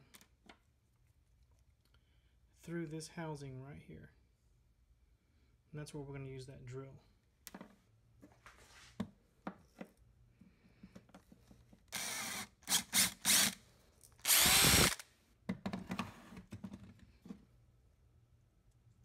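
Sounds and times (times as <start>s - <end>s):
cordless drill running: 11.9s - 13.6s, 14.2s - 15.0s.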